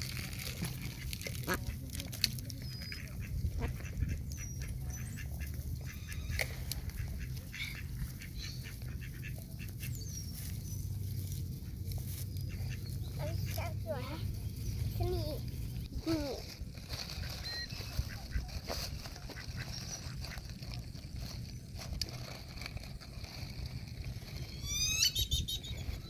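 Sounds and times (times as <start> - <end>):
birds pecking and scuffling: 0.0 - 26.0
low rumble: 0.0 - 26.0
duck quacking: 0.6 - 1.8, 3.0 - 9.9, 18.0 - 20.5.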